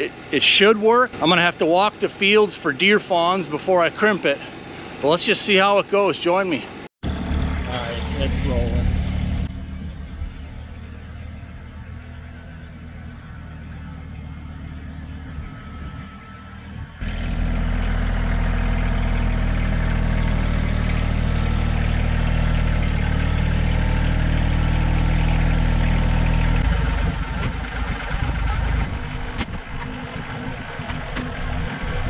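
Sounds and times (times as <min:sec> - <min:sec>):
tractor diesel engine running: 0:07.0 - 0:32.0.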